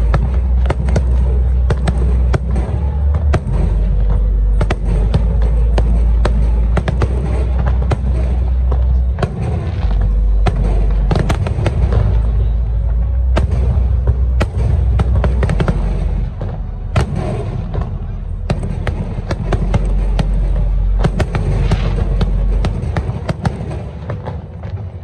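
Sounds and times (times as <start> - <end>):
deep continuous rumble: 0.0 - 25.0
fireworks bangs and crackles: 0.0 - 25.0.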